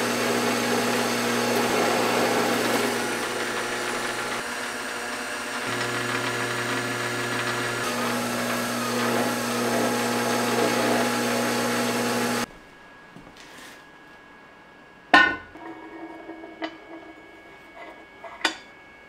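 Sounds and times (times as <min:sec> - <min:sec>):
lathe motor humming: 0:00.0 - 0:12.5.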